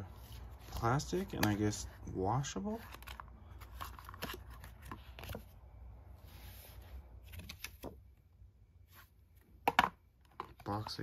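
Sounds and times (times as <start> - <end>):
plastic cards clicking and tapping: 0.7 - 1.8.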